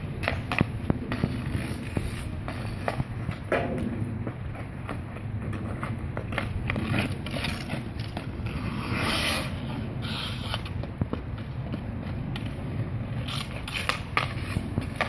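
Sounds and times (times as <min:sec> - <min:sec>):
skate blades scraping ice: 0:00.0 - 0:15.0
hockey stick clicking puck: 0:13.2 - 0:15.0.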